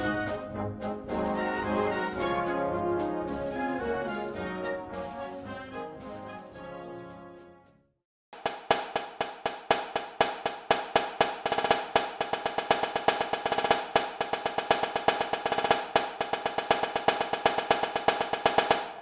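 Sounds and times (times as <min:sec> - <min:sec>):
snare drum cadence: 0:08.4 - 0:19.0.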